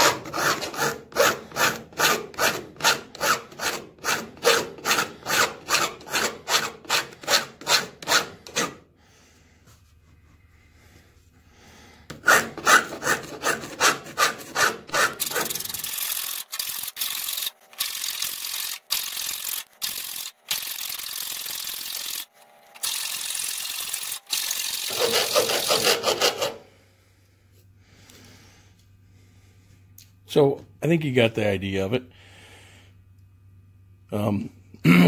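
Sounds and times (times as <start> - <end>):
file rasping on sheet metal: 0.0 - 8.8, 12.1 - 16.8, 24.8 - 26.6.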